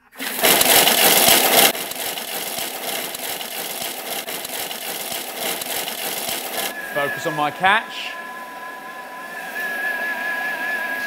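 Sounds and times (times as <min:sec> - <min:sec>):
blender grinding dried fruit and nuts: 0:00.0 - 0:06.7.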